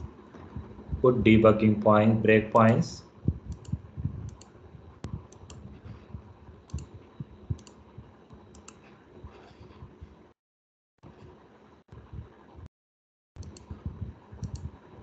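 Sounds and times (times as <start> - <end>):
computer mouse clicks: 3.5 - 5.6, 6.7 - 7.8, 8.4 - 8.9, 13.4 - 13.7, 14.4 - 14.7.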